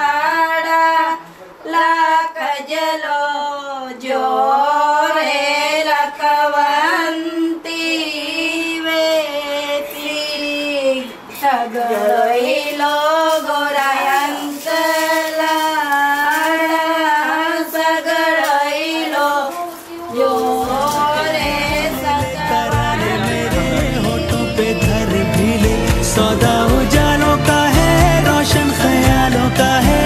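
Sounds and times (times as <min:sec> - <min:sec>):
high voice singing: 0:07.2 - 0:30.0
low beat and instruments: 0:20.5 - 0:30.0.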